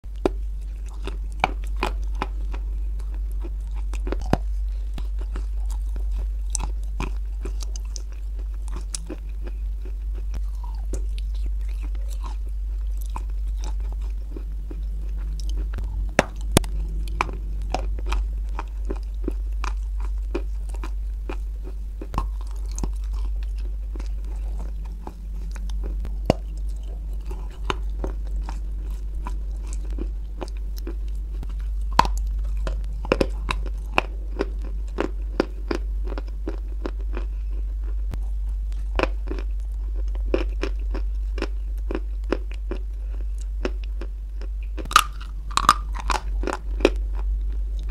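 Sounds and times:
steady low hum: 0.0 - 47.9
chewing chalk crunches: 0.2 - 47.9.

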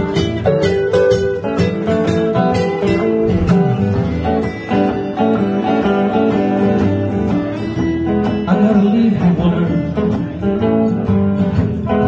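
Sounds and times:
blues guitars playing: 0.0 - 12.0
bass line: 2.8 - 5.3.

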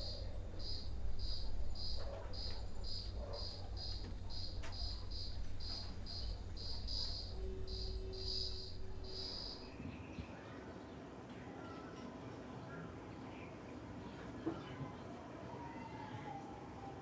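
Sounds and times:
crickets chirping: 0.0 - 9.8
steady low rumble: 0.0 - 10.0.

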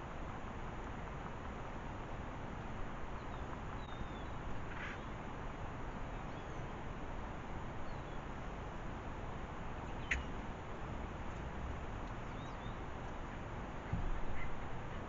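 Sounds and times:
outdoor background hiss: 0.0 - 15.0
faint bird chirps: 3.2 - 5.2, 6.2 - 6.8, 9.9 - 10.4, 12.2 - 12.8.

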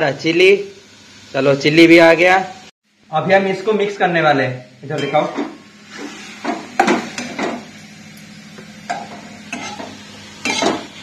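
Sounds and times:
spatula scraping a pan: 5.2 - 7.6, 8.9 - 10.9.

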